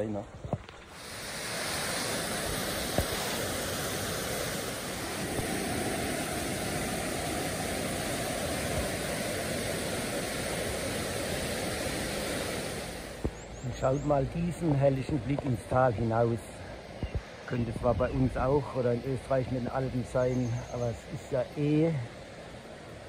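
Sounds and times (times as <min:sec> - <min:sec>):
whitewater rushing: 0:00.0 - 0:13.4.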